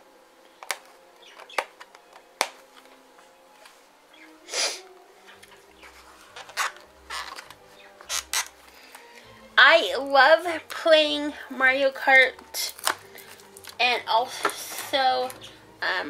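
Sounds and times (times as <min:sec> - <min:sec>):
packaging clicks: 0:00.6 - 0:03.0, 0:05.4 - 0:09.1, 0:12.4 - 0:13.8
tape rasping: 0:05.3 - 0:09.2
packaging rustling: 0:05.4 - 0:09.1, 0:12.7 - 0:13.8.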